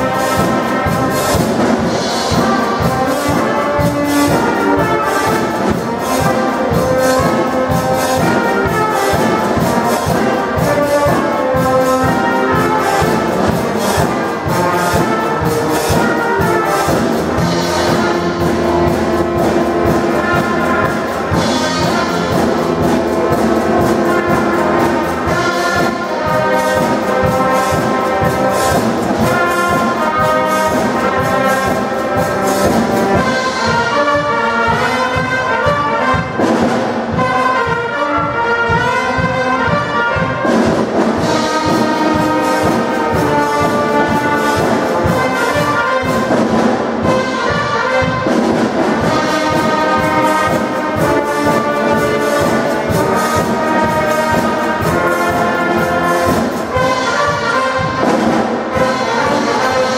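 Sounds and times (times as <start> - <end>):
percussion steady beat: 0.0 - 59.9
wind band playing a tune: 0.0 - 59.9.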